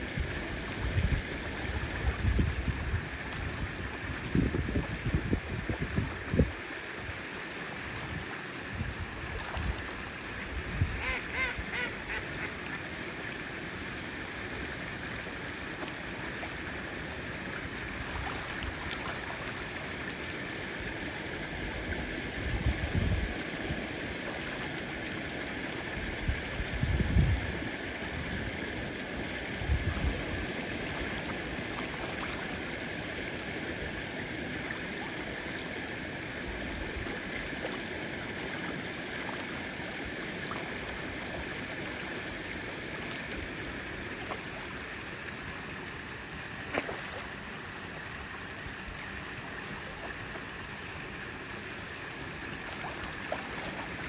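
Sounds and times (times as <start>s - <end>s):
flowing water rushing: 0.0s - 54.0s
ducks quacking: 11.0s - 12.8s.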